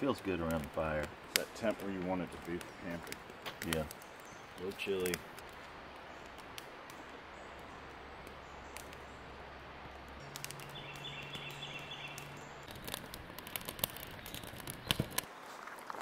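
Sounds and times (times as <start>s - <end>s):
wood fire crackling: 0.0s - 16.0s.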